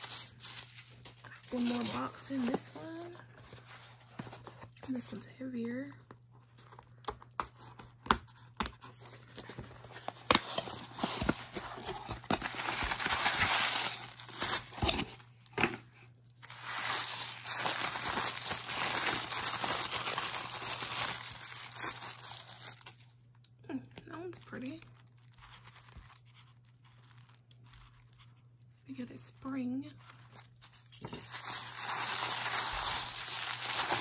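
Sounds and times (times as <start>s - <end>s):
tissue paper crinkling: 0.0s - 4.8s, 9.0s - 15.2s, 16.4s - 23.1s, 24.4s - 28.5s, 30.0s - 34.0s.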